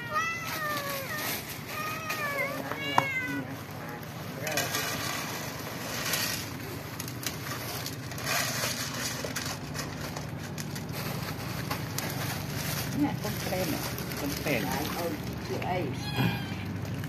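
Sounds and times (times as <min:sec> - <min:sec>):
cats crunching dry food: 0:00.0 - 0:17.0
plastic bag rustling: 0:00.0 - 0:17.0.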